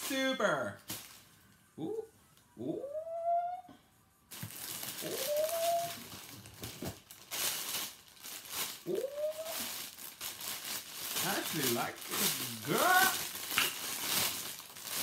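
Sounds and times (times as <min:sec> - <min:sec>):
plastic packaging crinkling: 0:00.0 - 0:01.6, 0:04.3 - 0:15.0
drawn-out vocal calls: 0:05.0 - 0:06.0, 0:08.8 - 0:09.7.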